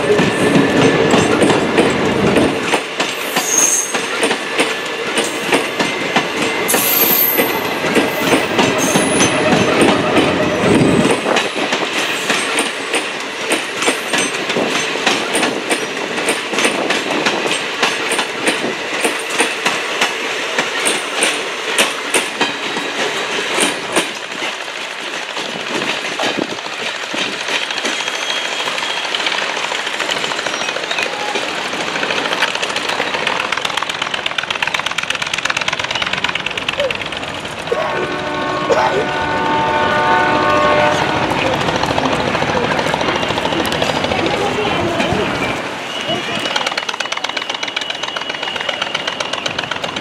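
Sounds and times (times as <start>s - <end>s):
train wheels clicking over rail joints: 0.0s - 38.4s, 40.4s - 50.0s.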